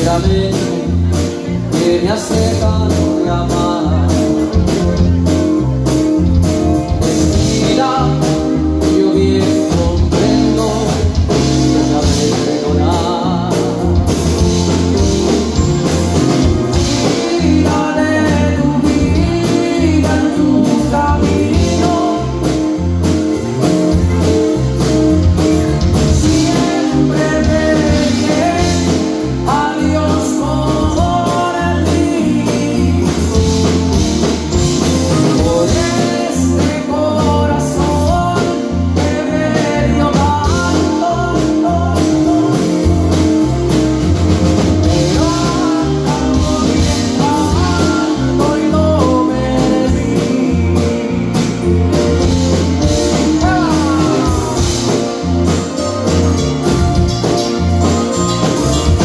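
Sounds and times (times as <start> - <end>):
band music with singing: 0.0 - 59.0
bass line: 0.0 - 59.0
drum kit: 0.0 - 59.0
guitar: 0.0 - 59.0.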